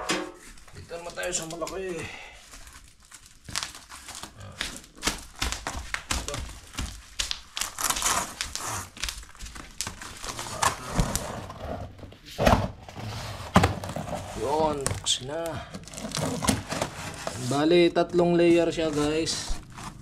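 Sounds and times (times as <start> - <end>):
packaging rustling and crinkling: 0.4 - 20.0.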